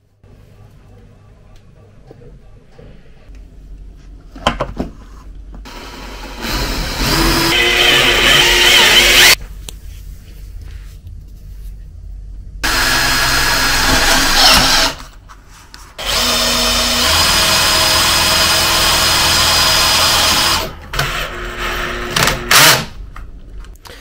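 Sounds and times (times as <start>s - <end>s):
cordless drill driving screws: 12.6s - 15.0s, 16.0s - 21.3s.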